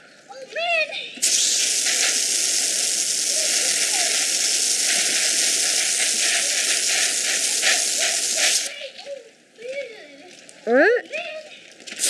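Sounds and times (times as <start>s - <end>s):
hose sprayer hissing: 1.2s - 8.7s.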